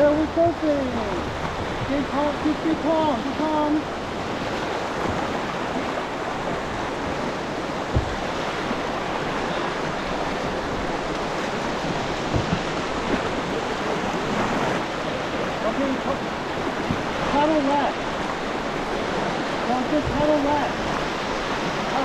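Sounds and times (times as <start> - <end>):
water rushing around canoe: 0.0 - 22.0
low thumps: 7.8 - 8.7, 10.7 - 13.4.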